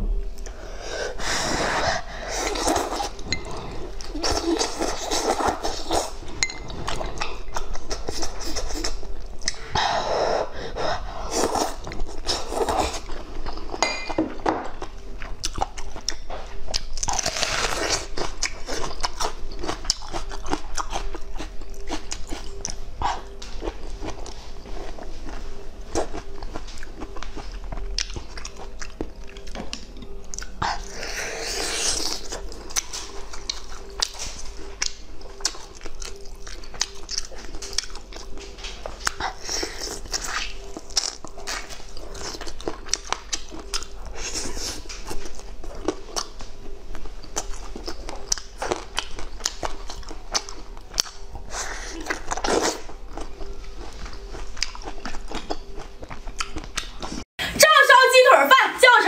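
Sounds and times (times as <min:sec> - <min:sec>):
person chewing crunchy food: 0:00.0 - 0:57.2.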